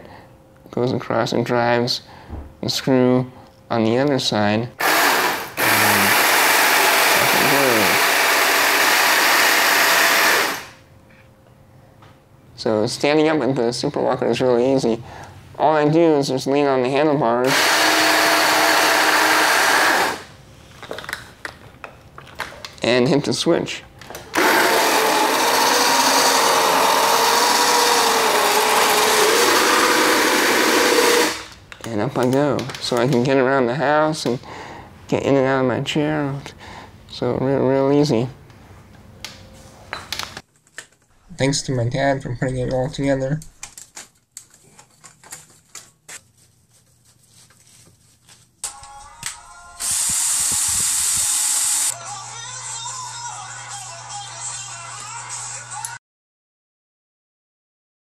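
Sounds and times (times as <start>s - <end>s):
cordless drill running: 4.8s - 10.8s, 17.5s - 20.3s, 24.4s - 31.5s, 49.8s - 52.0s
electric motor whine: 4.8s - 10.8s, 17.5s - 20.3s, 24.4s - 31.5s, 49.7s - 52.0s
mechanical noise: 48.6s - 52.0s
background music: 48.7s - 50.0s.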